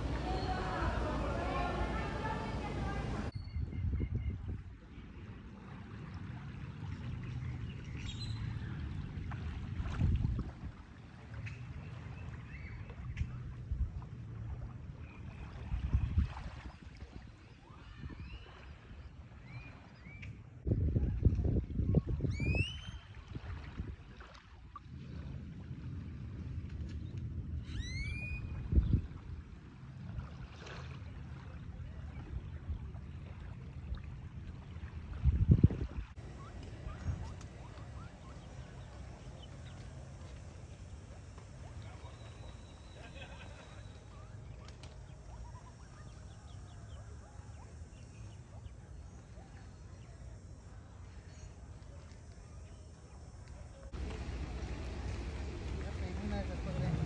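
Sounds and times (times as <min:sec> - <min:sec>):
waves washing on beach: 0:00.0 - 0:03.3, 0:53.9 - 0:57.0
wind rumbling on microphone: 0:00.0 - 0:19.2, 0:20.3 - 0:42.0, 0:53.0 - 0:57.0.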